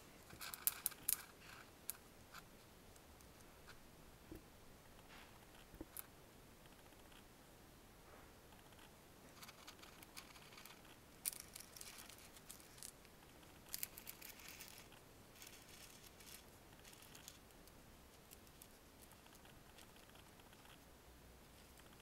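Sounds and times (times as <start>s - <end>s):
rustling and crinkling handling: 13.7s - 19.2s.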